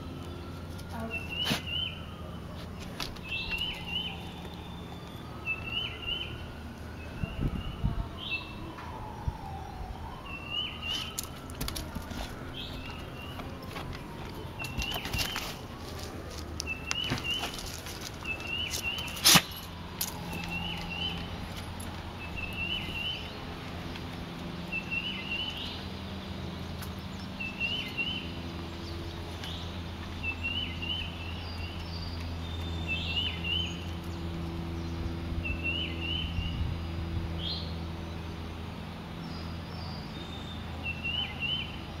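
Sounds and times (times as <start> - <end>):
songbird chirping: 0.0 - 42.0.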